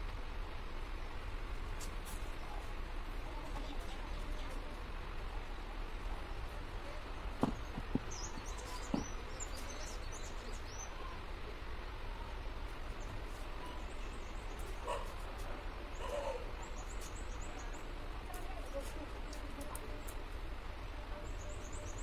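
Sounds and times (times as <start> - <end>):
steady background hiss: 0.0 - 22.0
small birds chirping: 6.1 - 12.2, 12.8 - 22.0
light knocks: 7.4 - 8.2.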